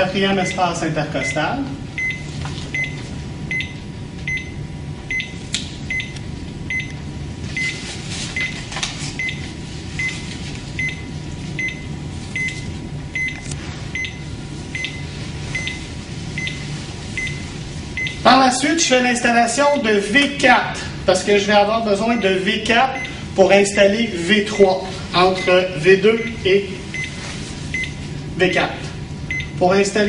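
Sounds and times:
cardiac monitor beeping: 0:00.0 - 0:20.4, 0:21.1 - 0:28.4, 0:29.0 - 0:30.0
steady low hum: 0:00.0 - 0:30.0.

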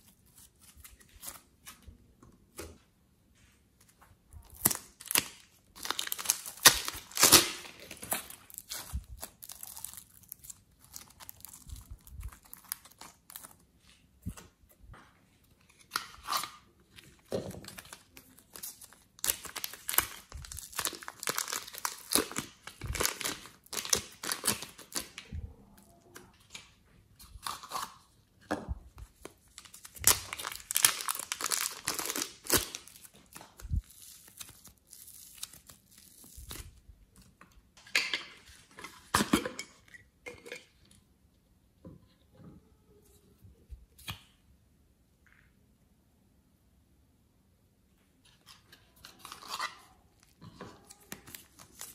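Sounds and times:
plastic bags crinkling: 0:04.5 - 0:13.6, 0:17.6 - 0:25.2, 0:29.5 - 0:36.6.

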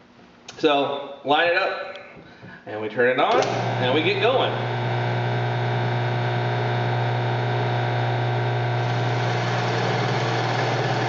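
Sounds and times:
drill press boring wood: 0:03.4 - 0:11.0.

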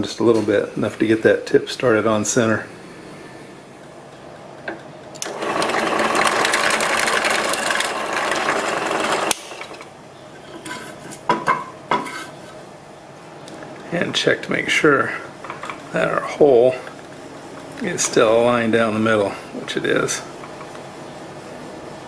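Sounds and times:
drill press drilling into wood: 0:05.2 - 0:09.8.

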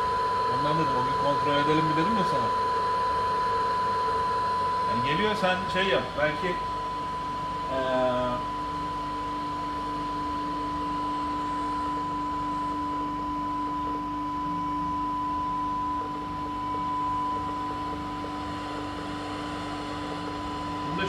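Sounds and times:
lower steady tone: 0:06.2 - 0:21.0.

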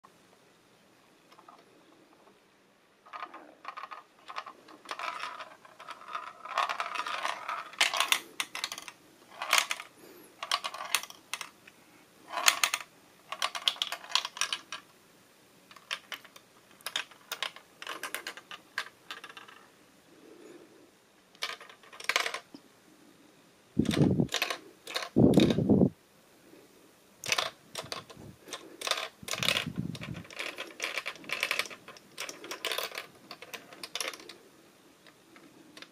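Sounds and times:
plastic ball rattling through maze: 0:03.0 - 0:11.6, 0:12.2 - 0:14.9, 0:15.6 - 0:19.7, 0:21.3 - 0:22.6, 0:23.8 - 0:25.9, 0:27.2 - 0:35.9.

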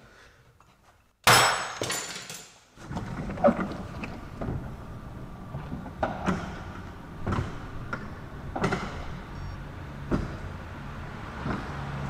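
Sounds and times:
garage door motor hum: 0:02.8 - 0:12.0
garage door clunks: 0:03.2 - 0:12.0.

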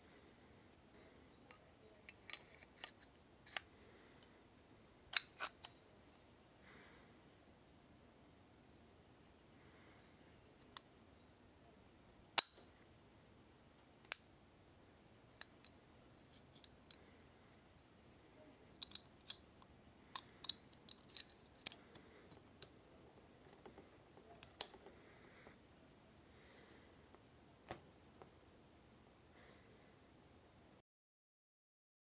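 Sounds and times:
pistol parts clicking: 0:01.5 - 0:03.7, 0:05.1 - 0:05.8, 0:12.4 - 0:12.6, 0:18.8 - 0:22.8.

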